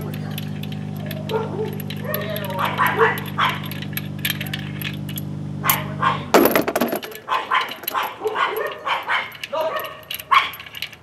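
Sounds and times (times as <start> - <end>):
lug nuts clinking: 0.0 - 11.0
metallic clatter: 0.0 - 11.0
steady hum: 0.0 - 11.0
dog barking: 0.2 - 3.8, 5.6 - 6.3, 7.1 - 10.7.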